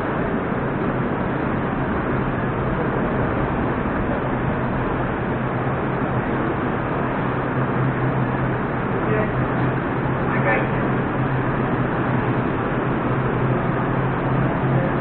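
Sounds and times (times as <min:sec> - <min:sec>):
constant low hum: 0:00.0 - 0:15.0.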